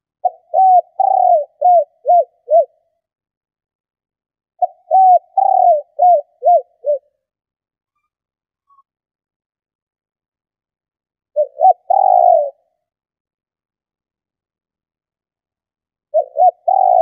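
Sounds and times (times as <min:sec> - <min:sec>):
dove cooing: 0:00.2 - 0:02.8, 0:04.6 - 0:07.2, 0:11.3 - 0:12.7, 0:16.1 - 0:17.0.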